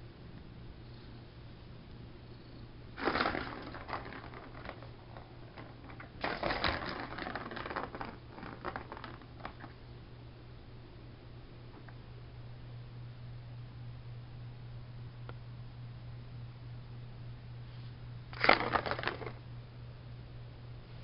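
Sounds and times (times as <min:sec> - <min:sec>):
ball rattling around plastic track: 0:03.0 - 0:09.8, 0:18.3 - 0:19.4.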